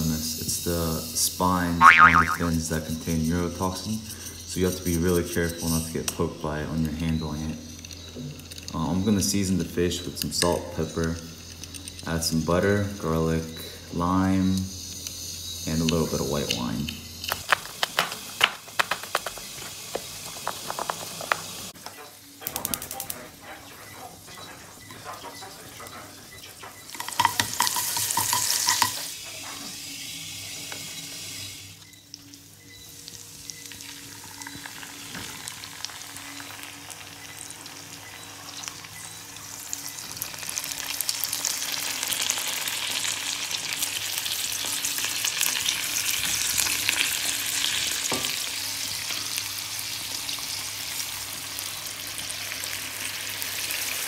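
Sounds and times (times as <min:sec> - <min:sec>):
fish frying in butter: 0:00.5 - 0:02.4, 0:14.7 - 0:21.8, 0:26.9 - 0:54.0.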